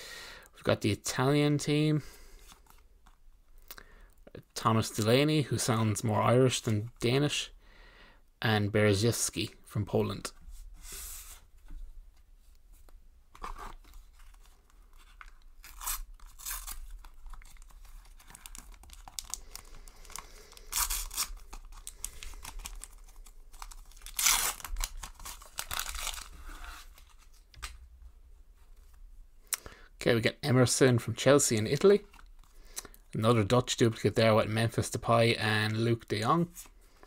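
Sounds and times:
sticker packet wrapper ripping: 15.6 - 26.3.

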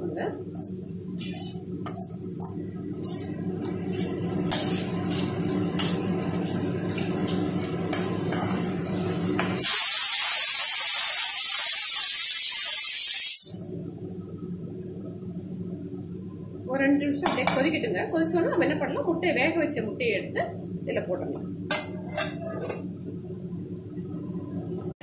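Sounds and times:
steady low hum: 0.0 - 9.7, 13.5 - 25.0
metal spatula scraping a pan: 1.2 - 2.0, 3.9 - 9.6, 21.7 - 22.8
loud even hiss: 9.5 - 13.6.

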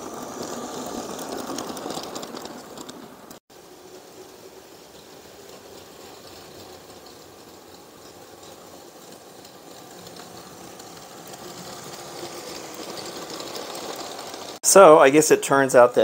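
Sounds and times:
toy train wheels clicking on track: 0.0 - 15.0.

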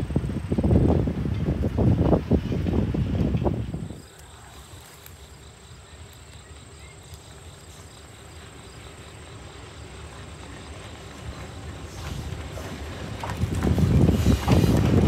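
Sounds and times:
insects chirping: 2.4 - 15.0.

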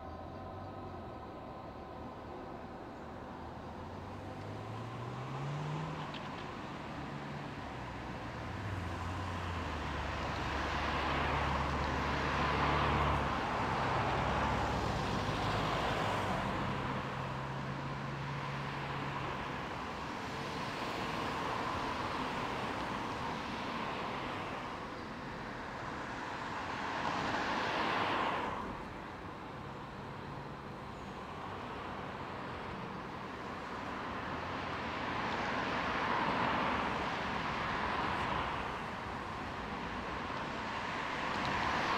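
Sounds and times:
diesel locomotive engine drone: 0.0 - 27.2
passing road traffic: 0.0 - 41.9.

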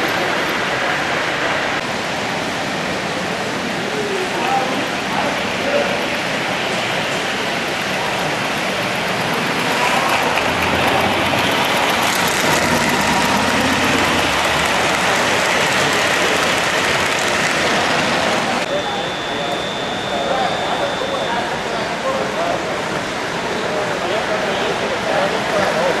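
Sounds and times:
model train wheels clattering: 7.7 - 18.5.

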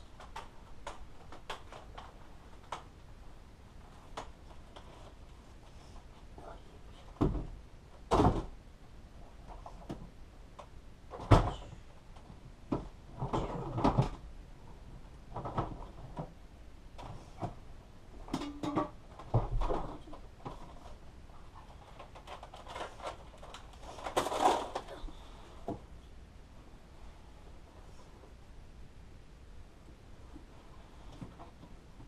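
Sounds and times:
rustling or scraping: 3.8 - 6.4, 19.1 - 25.9.

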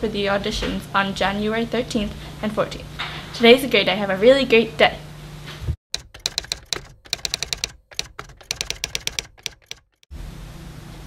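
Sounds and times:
typewriter keys clacking: 5.9 - 10.0.

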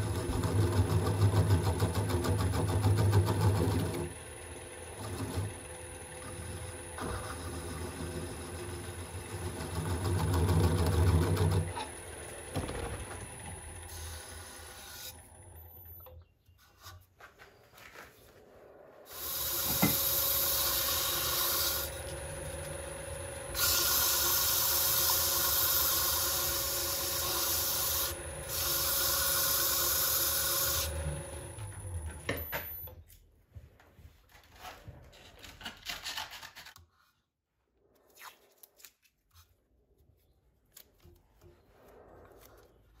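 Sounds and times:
wood lathe turning: 0.0 - 15.6, 19.1 - 32.4
gouge cutting wood: 6.2 - 12.0, 19.2 - 22.2, 23.6 - 31.0.

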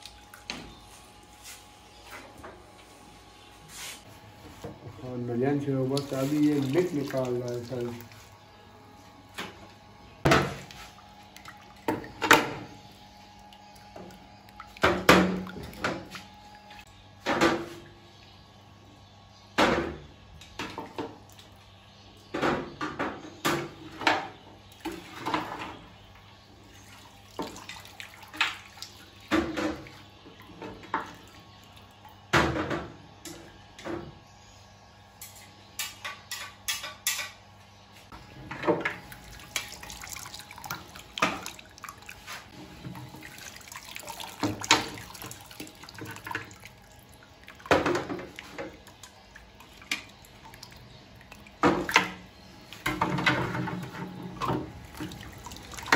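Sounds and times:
liquid splashing: 5.8 - 8.4, 39.0 - 55.9.

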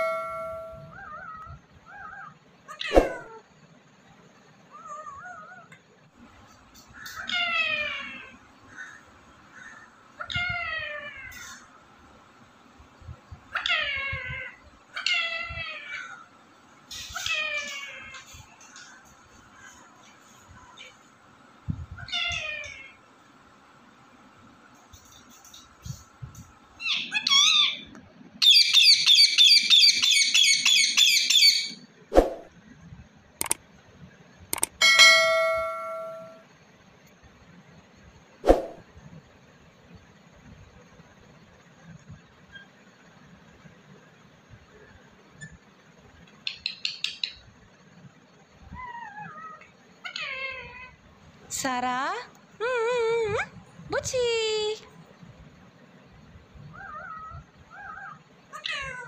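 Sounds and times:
parakeet calling: 26.8 - 31.8.

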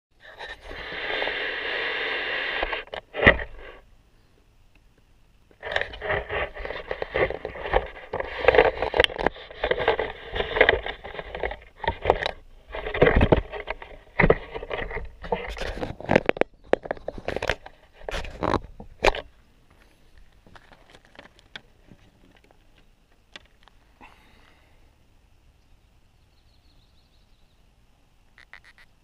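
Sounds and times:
cables rustling and scraping: 0.2 - 3.9, 5.5 - 24.6.

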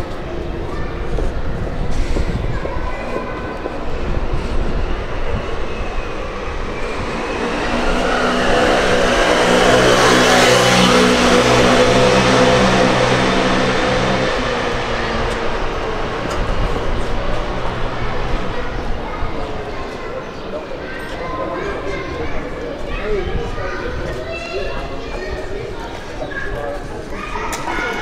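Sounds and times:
vehicle passing by: 1.7 - 23.8.

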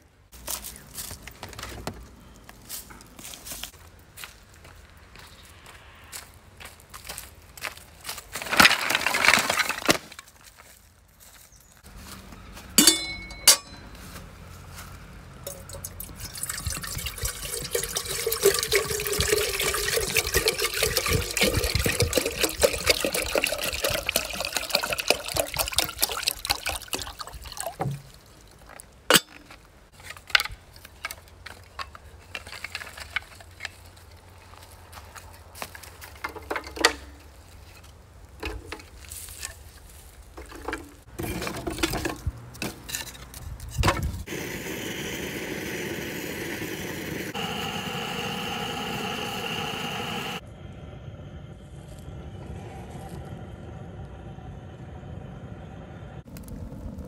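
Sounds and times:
metal clink: 12.8 - 14.0
water pouring into kettle: 15.5 - 27.9.

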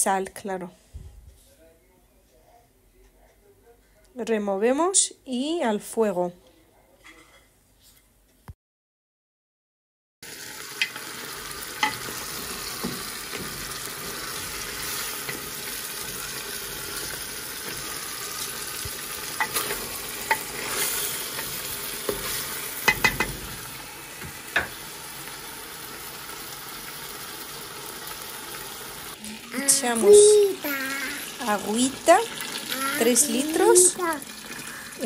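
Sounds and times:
food sizzling in oil: 10.2 - 35.0.

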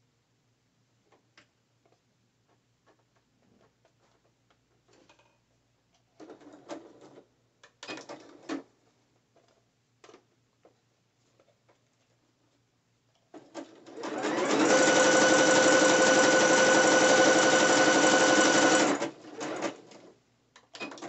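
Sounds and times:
sewing machine stitching: 13.3 - 20.1
small clicks of sewing machine: 18.4 - 21.0.

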